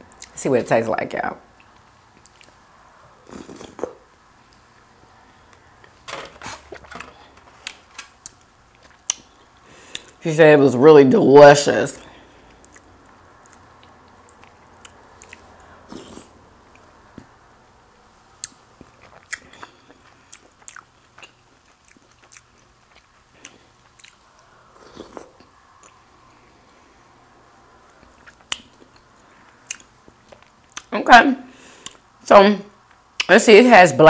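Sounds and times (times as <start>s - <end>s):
person chewing with mouth clicks: 1.6s - 2.6s, 3.2s - 4.6s, 6.4s - 10.2s, 12.4s - 17.3s, 18.4s - 26.1s, 27.9s - 30.9s, 31.8s - 32.1s.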